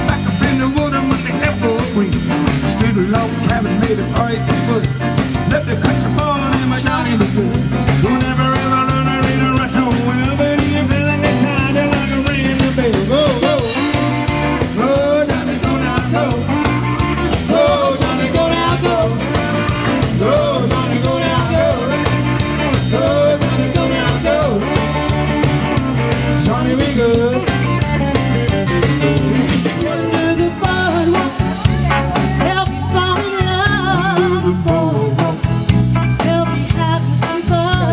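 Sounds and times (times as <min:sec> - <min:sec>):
drum kit: 0:00.0 - 0:37.9
keyboard: 0:00.0 - 0:37.9
upright bass line: 0:00.0 - 0:37.9
saxophone: 0:15.9 - 0:20.3, 0:27.5 - 0:33.7.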